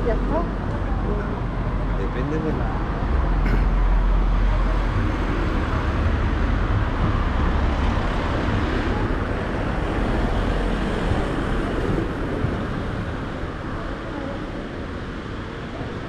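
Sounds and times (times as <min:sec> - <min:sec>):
vehicle engine rumble with tyre noise: 0:00.0 - 0:16.0.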